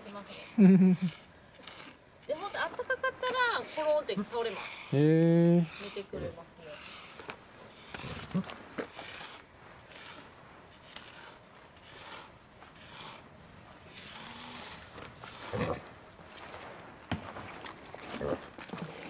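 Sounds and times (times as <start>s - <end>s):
pig rooting in dirt: 0.0s - 19.0s.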